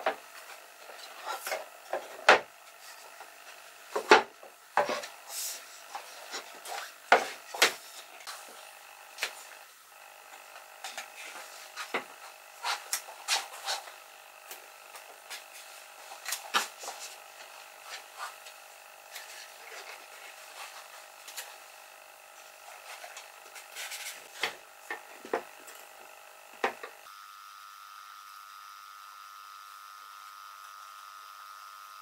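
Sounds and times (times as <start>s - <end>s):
wood rubbing on tabletop: 3.9s - 8.6s.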